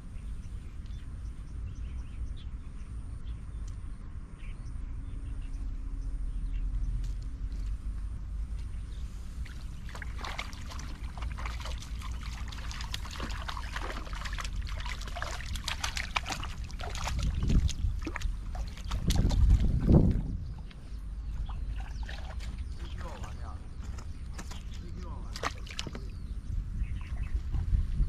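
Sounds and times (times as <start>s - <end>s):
low rumble: 0.0s - 28.0s
fish splashing in water: 9.4s - 20.7s, 21.4s - 23.4s, 24.4s - 26.2s.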